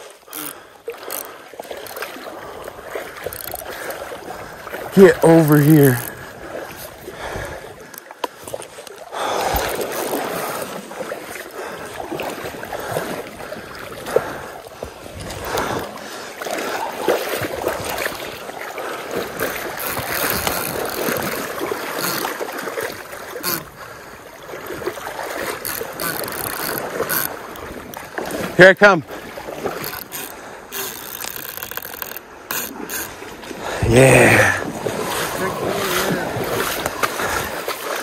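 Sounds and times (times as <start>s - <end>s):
stream water rushing: 0.0s - 38.0s
fishing reel clicking: 0.2s - 2.2s, 3.0s - 3.8s, 5.4s - 6.2s, 19.3s - 22.4s, 23.3s - 23.8s, 24.6s - 28.0s, 29.6s - 33.2s.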